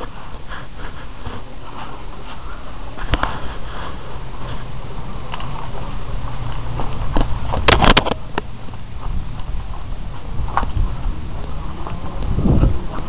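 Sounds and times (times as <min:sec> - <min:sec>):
rustle of walking movement: 0:00.0 - 0:13.0.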